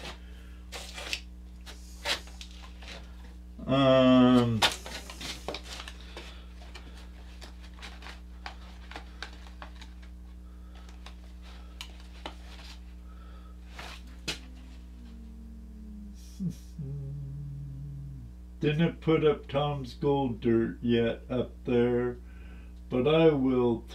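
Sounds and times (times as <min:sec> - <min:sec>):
low electrical hum: 0:00.0 - 0:23.9
man humming: 0:03.6 - 0:05.2, 0:13.8 - 0:19.0
paper rustling: 0:04.4 - 0:13.0.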